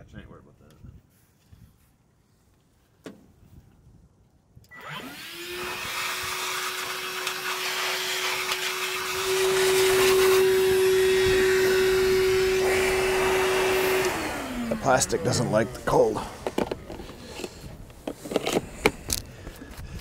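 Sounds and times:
shop vacuum motor whining: 0:04.7 - 0:19.8
rush of air: 0:09.6 - 0:14.7.

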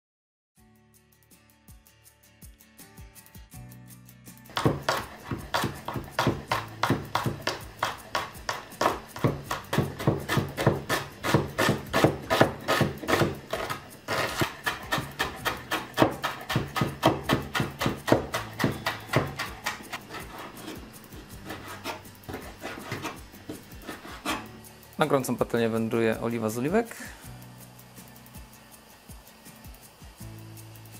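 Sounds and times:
knife chopping on wooden board: 0:04.5 - 0:24.5.

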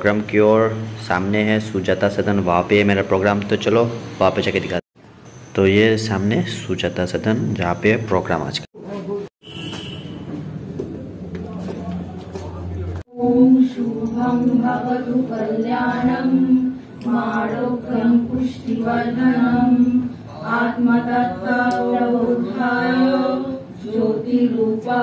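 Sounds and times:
women chanting in unison: 0:13.1 - 0:25.0.

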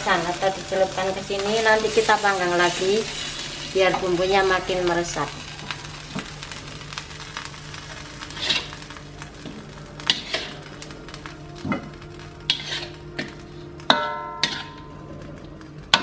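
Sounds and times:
light sizzling: 0:00.0 - 0:16.0
metal utensils scraping a wok: 0:08.2 - 0:08.8, 0:10.0 - 0:10.7, 0:12.4 - 0:15.0.

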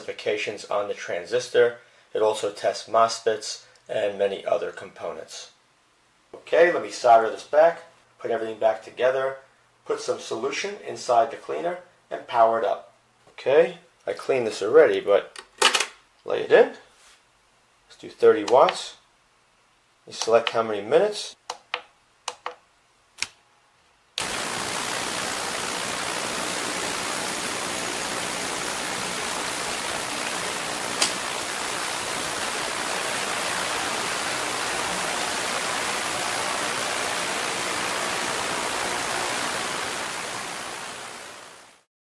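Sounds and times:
ultrasonic cleaner hissing: 0:24.2 - 0:41.9.

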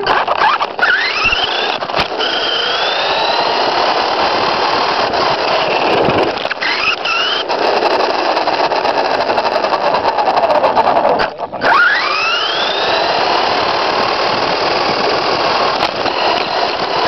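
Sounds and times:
electric motor whining: 0:00.0 - 0:17.0
steady rushing noise: 0:00.0 - 0:17.0.

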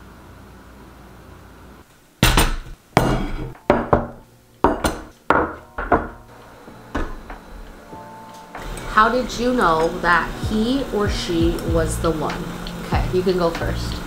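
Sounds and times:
tableware knocking and clinking: 0:02.2 - 0:06.3.

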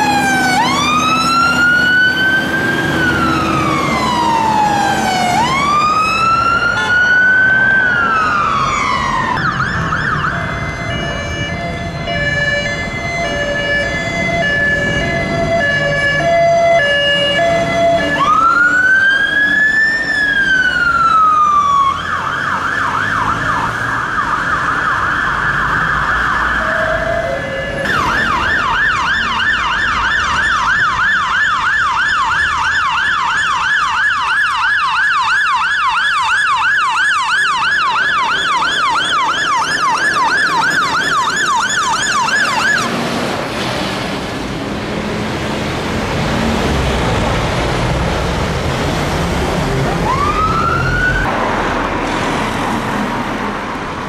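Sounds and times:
two-tone siren: 0:00.0 - 0:43.0, 0:49.8 - 0:52.0
fire engine siren wail: 0:00.0 - 0:54.0
siren fast yelp: 0:19.6 - 0:42.9.

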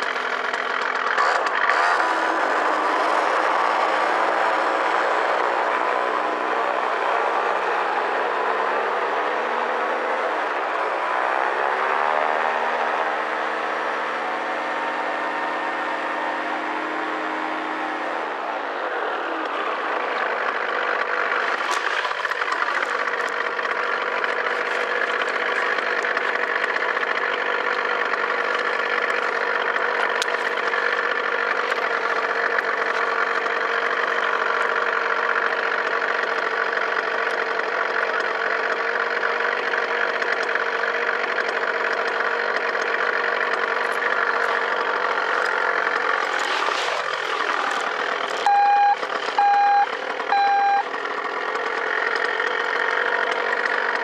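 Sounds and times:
paramotor engine running: 0:00.0 - 0:54.0
short electronic beeps: 0:48.4 - 0:50.9.

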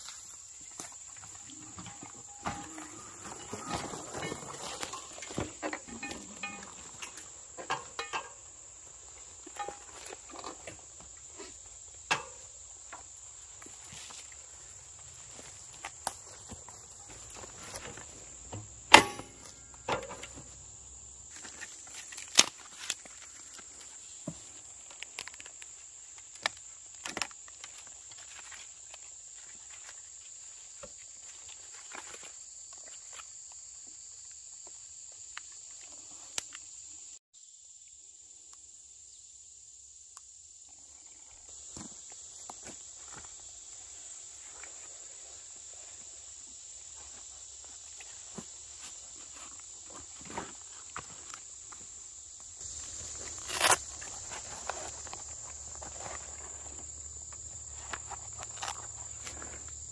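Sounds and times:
insects buzzing: 0:00.0 - 0:59.9
bike clicks and knocks: 0:03.7 - 0:08.5, 0:17.4 - 0:20.5.

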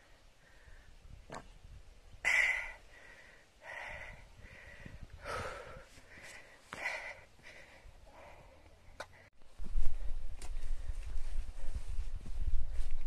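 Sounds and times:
person breathing hard: 0:02.2 - 0:11.1.

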